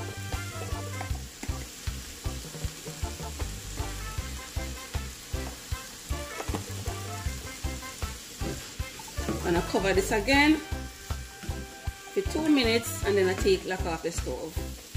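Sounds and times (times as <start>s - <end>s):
food sizzling: 0.0s - 14.9s
spatula scraping a skillet: 8.0s - 9.8s.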